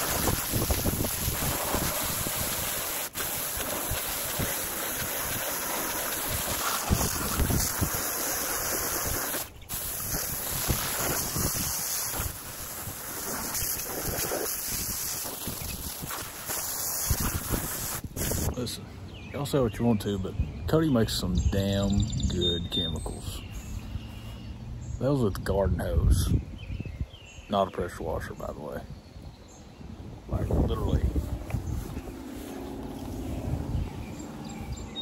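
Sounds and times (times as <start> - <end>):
water spray hitting wooden boards: 0.0 - 18.5
wind buffeting microphone: 0.0 - 19.3, 20.2 - 27.4, 28.4 - 35.0.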